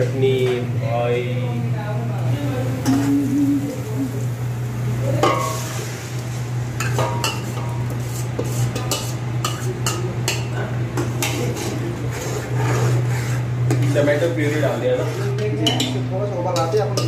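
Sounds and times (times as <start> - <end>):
steady low hum: 0.0 - 17.0
ladle scraping steel bowl: 6.8 - 9.8, 11.0 - 16.0.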